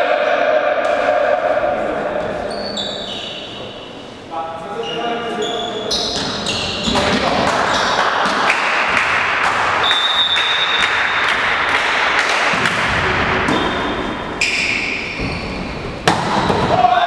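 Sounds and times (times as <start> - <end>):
echoing hall noise: 0.0 - 17.0
short high squeaks: 2.4 - 3.9.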